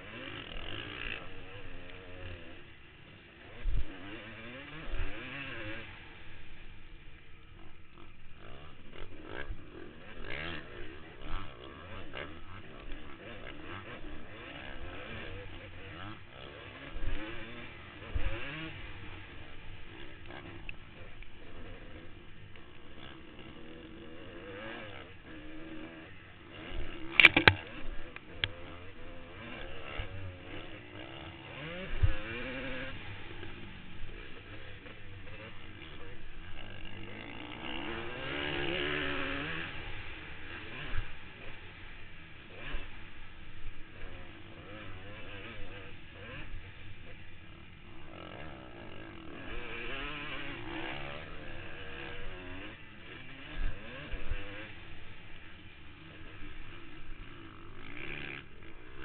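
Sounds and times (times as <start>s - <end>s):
motocross bike engine revving: 0.0s - 59.0s
sharp thumps: 27.1s - 27.8s.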